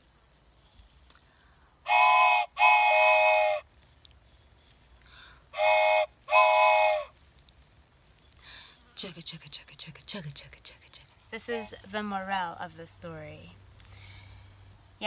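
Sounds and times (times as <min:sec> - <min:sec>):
toy train whistle toots: 0:01.9 - 0:03.6, 0:05.6 - 0:07.1.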